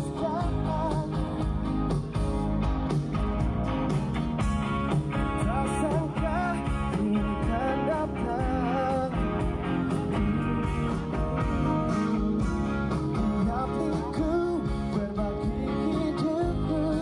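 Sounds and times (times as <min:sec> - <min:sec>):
man singing: 0:00.0 - 0:01.5, 0:05.4 - 0:09.7, 0:12.1 - 0:17.0
live pop-rock band: 0:00.0 - 0:17.0.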